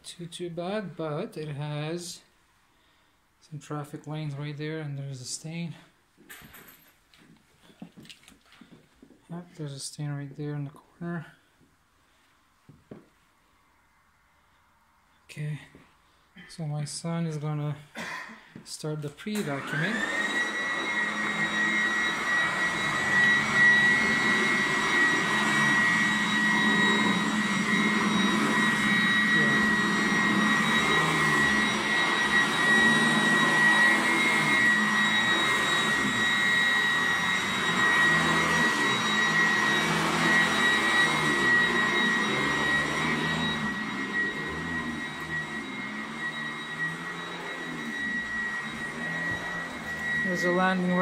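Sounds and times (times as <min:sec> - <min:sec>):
vacuum cleaner on carpet: 0:18.6 - 0:51.0.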